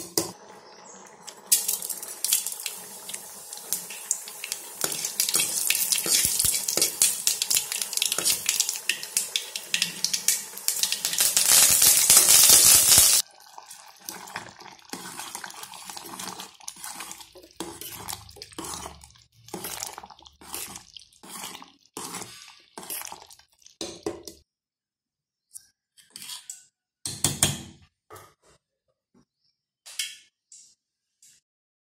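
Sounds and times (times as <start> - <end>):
seeds sizzling in hot oil: 0.3 - 24.0
ladle stirring and scraping pot: 3.7 - 24.4, 26.0 - 26.7.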